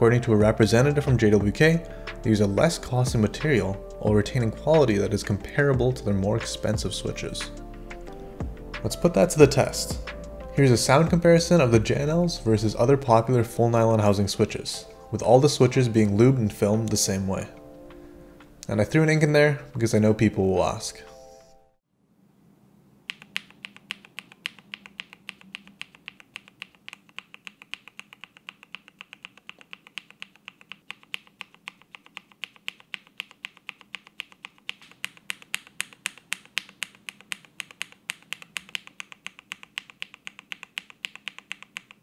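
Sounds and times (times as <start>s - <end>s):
mechanical keyboard typing: 23.1s - 42.0s.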